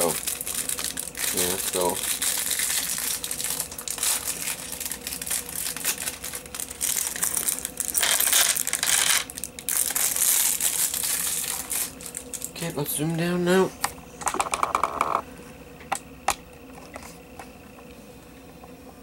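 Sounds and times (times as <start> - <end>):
plastic packaging crinkling: 0.0 - 12.7.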